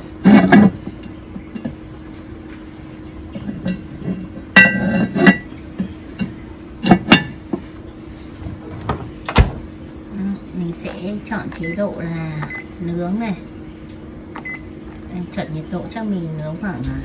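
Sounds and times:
steady low hum: 0.0s - 17.0s
heavy pot and lid knocking: 6.2s - 7.6s.

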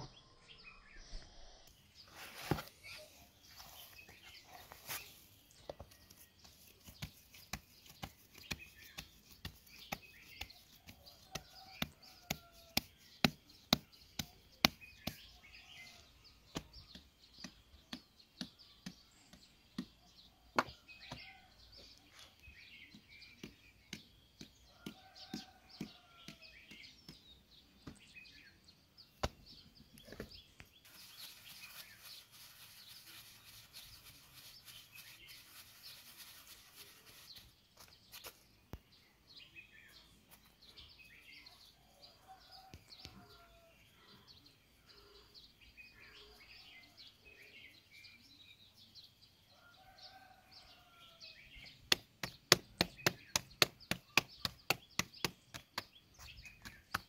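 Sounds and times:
birds chirping: 0.0s - 57.0s
hands slapping bread dough: 6.1s - 15.3s, 51.8s - 57.0s.

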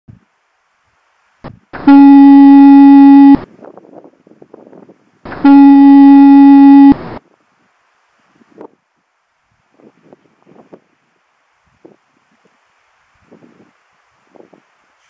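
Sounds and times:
fog horn blasts: 1.8s - 3.4s, 5.3s - 7.2s.

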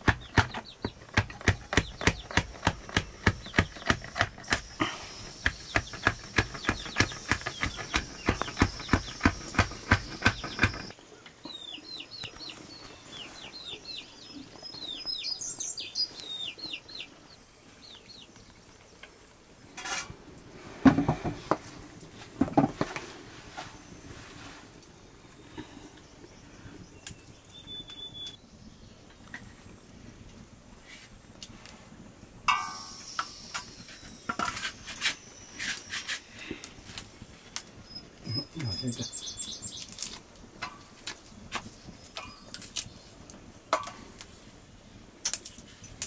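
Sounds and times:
birds chirping: 0.0s - 19.3s, 24.8s - 30.0s, 32.5s - 44.2s.

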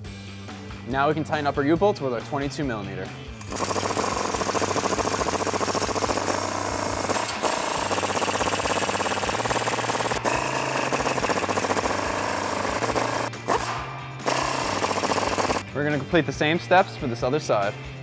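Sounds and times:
impact wrench hammering nuts: 3.4s - 15.6s.

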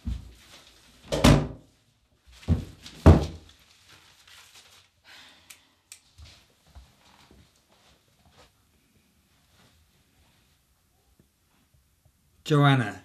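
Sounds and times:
paper rustling: 0.0s - 1.1s, 2.2s - 5.0s.

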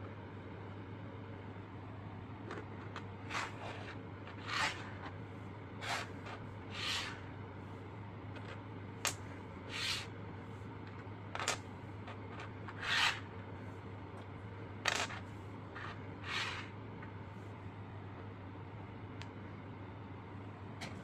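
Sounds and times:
steady low hum: 0.0s - 21.0s
boxes scraping on tabletop: 3.2s - 5.1s, 5.8s - 7.3s, 9.7s - 10.1s, 12.3s - 13.3s, 15.8s - 16.7s.

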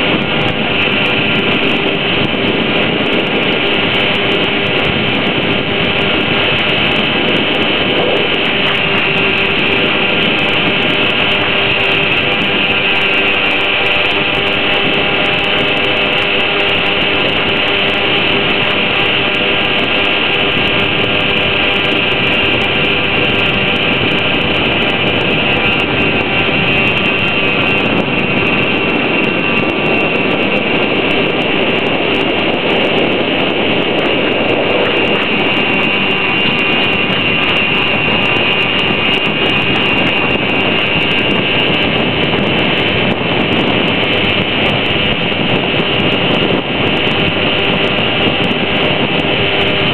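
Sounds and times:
electric motor whining: 0.0s - 49.9s
water rushing along hull: 0.0s - 49.9s.

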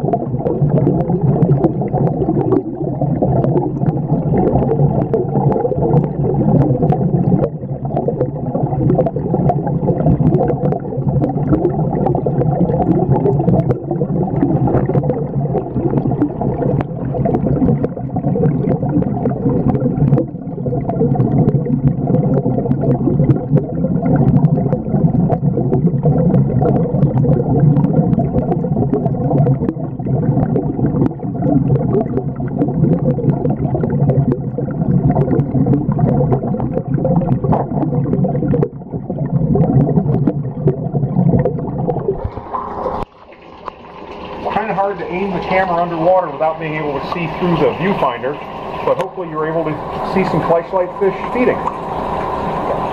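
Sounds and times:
underwater rumble and gurgling: 0.0s - 52.9s.

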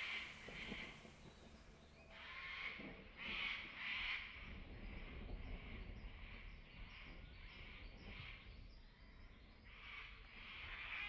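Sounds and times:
rain: 0.0s - 1.8s.

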